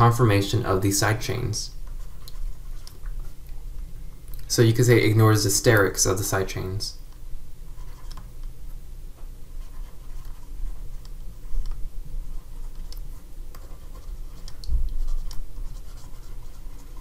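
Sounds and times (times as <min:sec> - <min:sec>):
steady low hum: 0:00.0 - 0:17.0
stylus scratching on tablet: 0:00.4 - 0:03.4, 0:07.7 - 0:08.4, 0:09.4 - 0:17.0.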